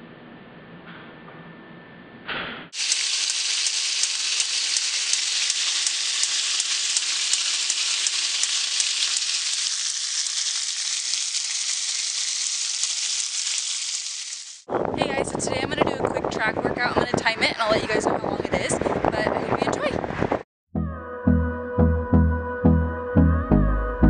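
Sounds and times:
bacon sizzling in a pan: 0:02.8 - 0:14.7.

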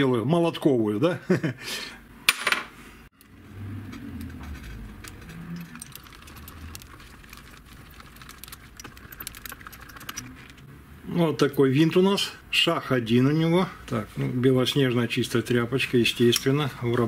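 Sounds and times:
small metal parts clinking: 0:03.9 - 0:10.6.

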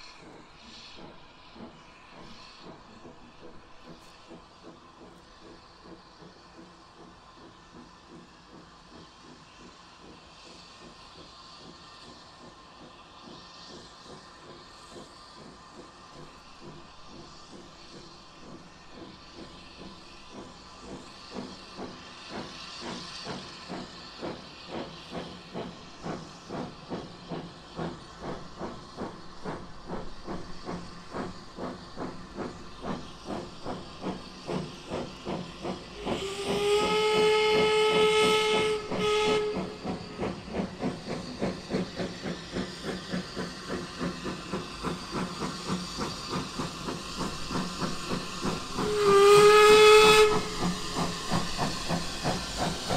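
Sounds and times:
hiss of steam: 0:00.0 - 0:52.9
steam locomotive exhaust beats: 0:00.0 - 0:52.9
steam whistle blast: 0:36.0 - 0:40.0, 0:48.8 - 0:50.8.

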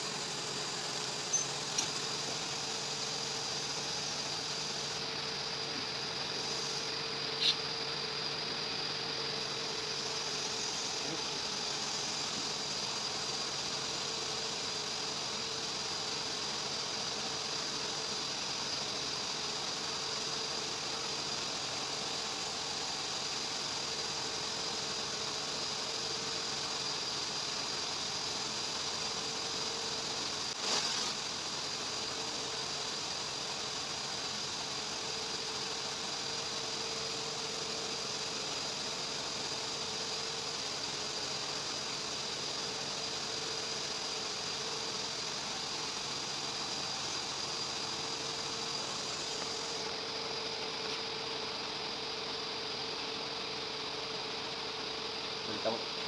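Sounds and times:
workshop machinery humming: 0:00.0 - 0:17.8, 0:35.8 - 0:53.4.

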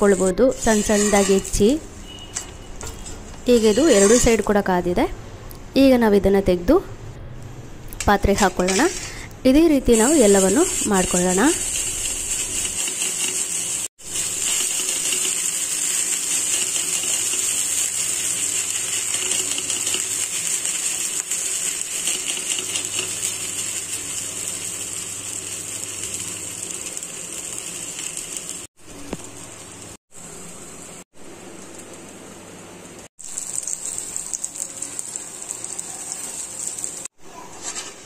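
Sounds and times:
dough sizzling on hot griddle: 0:09.9 - 0:31.0, 0:33.1 - 0:38.0.

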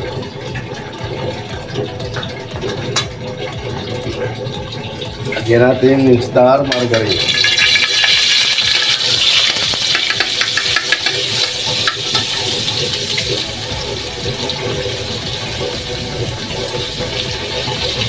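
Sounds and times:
margarine sizzling in a wok: 0:07.2 - 0:18.0.

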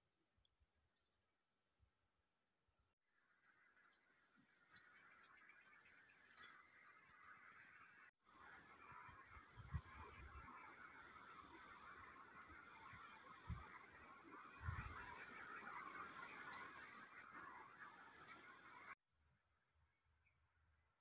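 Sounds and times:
high-pitched insect drone: 0:04.7 - 0:19.0.

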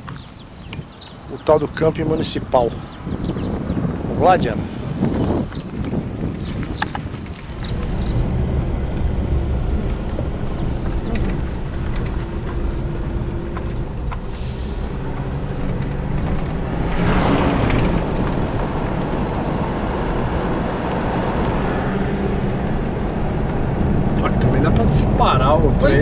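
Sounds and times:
car engine and tyre rumble: 0:00.0 - 0:26.0
rush of noise: 0:07.5 - 0:25.8.

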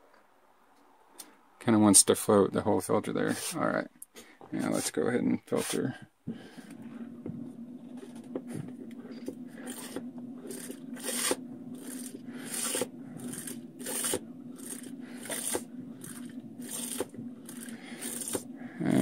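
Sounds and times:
hand pump water filter strokes: 0:07.8 - 0:19.0.

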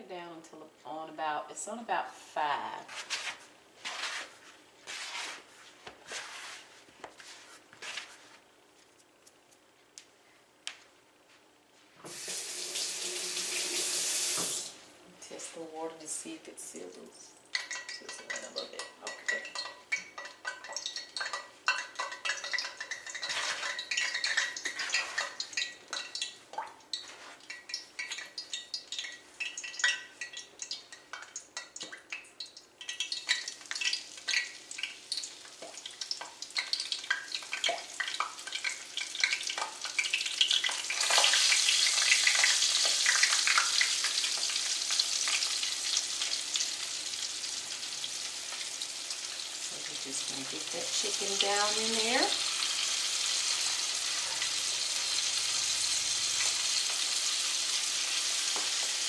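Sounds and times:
chicken frying in fat: 0:12.1 - 0:14.8, 0:16.8 - 0:59.0
fat crackling and popping: 0:16.9 - 0:47.8.

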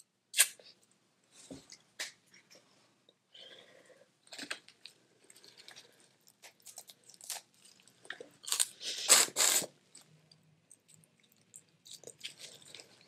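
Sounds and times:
chewing: 0:09.9 - 0:13.0.

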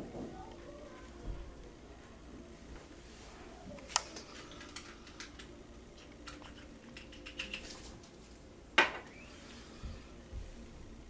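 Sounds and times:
small objects clicking and tapping: 0:03.9 - 0:07.8.

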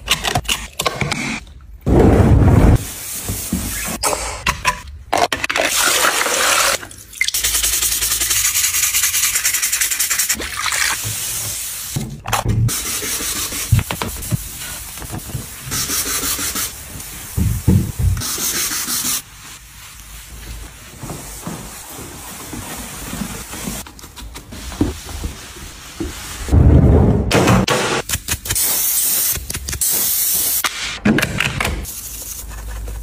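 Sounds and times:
cloth wiping hard surface: 0:12.8 - 0:23.9, 0:24.5 - 0:26.5.

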